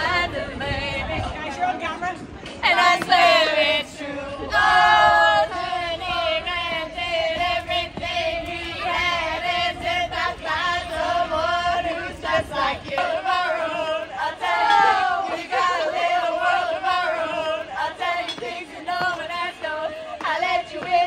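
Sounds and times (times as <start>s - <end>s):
group of voices singing: 0.0s - 1.6s, 2.4s - 21.0s.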